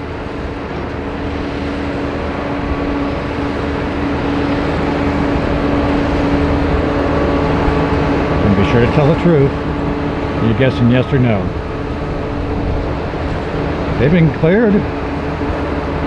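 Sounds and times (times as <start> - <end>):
jet engine rushing: 0.0 - 16.0
low engine hum: 0.0 - 16.0.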